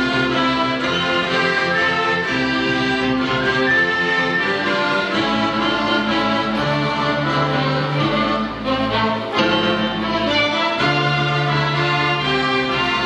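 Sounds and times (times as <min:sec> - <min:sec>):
violins: 0:00.0 - 0:13.0
plucked strings: 0:05.2 - 0:13.0.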